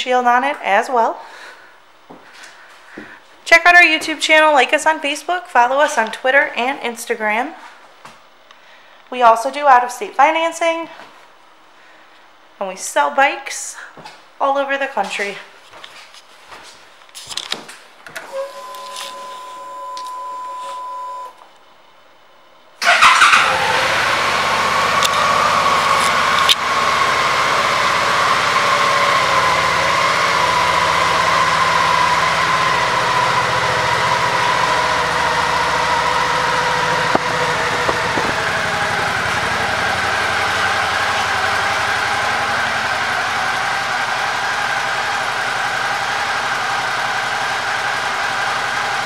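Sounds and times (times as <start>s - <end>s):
motorcycle engine idling: 24.0s - 49.0s
steady whine: 24.9s - 47.6s
ignition clicks: 25.0s - 26.6s, 36.1s - 39.3s.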